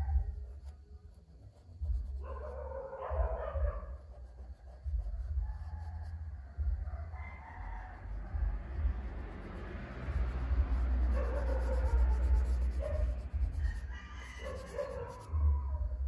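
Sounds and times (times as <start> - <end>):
low rumble: 4.7 - 13.9.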